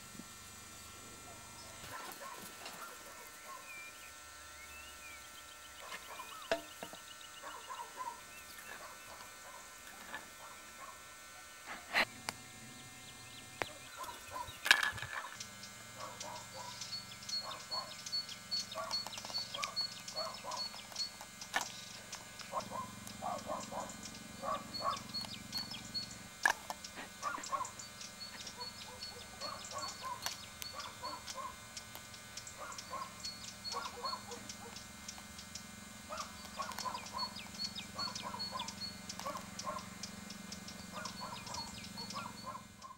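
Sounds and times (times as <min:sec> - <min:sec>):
low hum: 0:00.0 - 0:42.9
birds chirping: 0:00.8 - 0:11.0, 0:11.6 - 0:42.9
high bird peeps: 0:16.0 - 0:26.2, 0:26.8 - 0:42.9.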